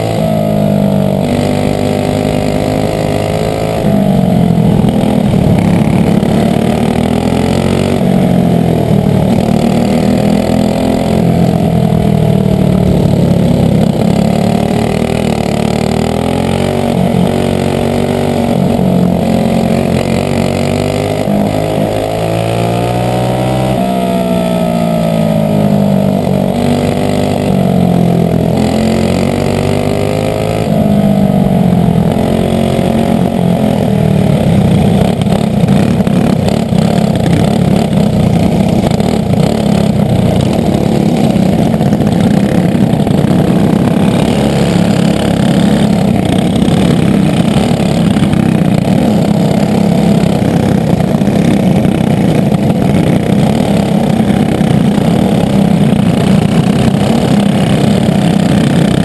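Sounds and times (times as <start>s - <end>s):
kart engine revving: 0.0s - 59.0s.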